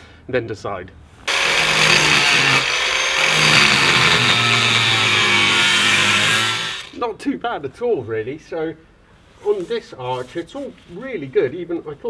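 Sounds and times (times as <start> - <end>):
angle grinder grinding metal: 1.3 - 7.0.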